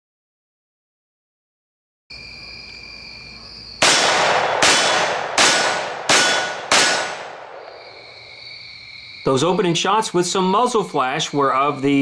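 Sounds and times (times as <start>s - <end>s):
high insect trill: 2.1s - 3.9s, 6.2s - 12.0s
pistol shots echoing: 3.8s - 8.2s.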